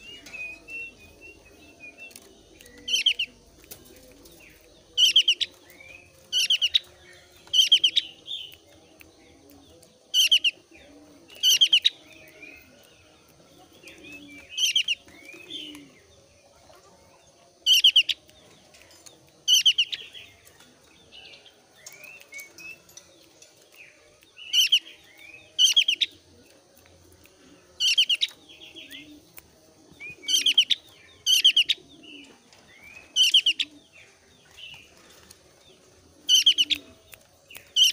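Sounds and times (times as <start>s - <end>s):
soft bird chirps: 0.0s - 37.9s.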